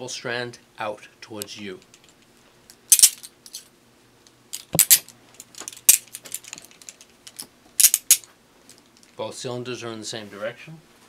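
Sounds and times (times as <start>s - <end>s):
chain handcuffs clinking: 2.9s - 3.7s, 4.5s - 8.2s.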